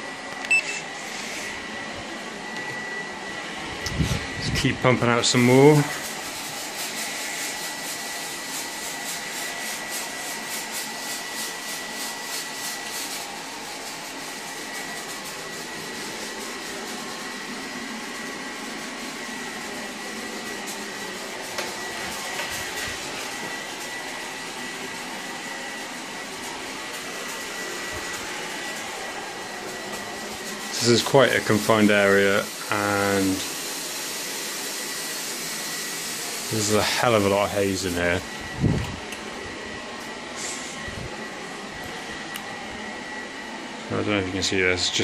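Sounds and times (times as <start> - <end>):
haze machine hiss: 2.3 - 39.4, 40.0 - 42.6.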